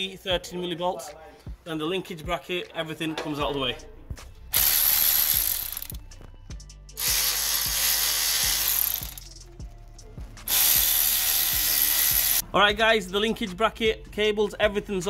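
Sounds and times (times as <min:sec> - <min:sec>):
cordless power tool spinning: 0:04.5 - 0:06.0, 0:07.0 - 0:09.3, 0:10.5 - 0:12.4.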